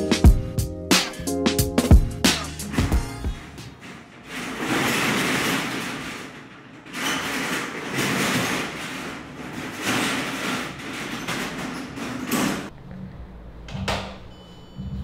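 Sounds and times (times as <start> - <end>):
metal roll-up shutter rattling: 2.6 - 12.7.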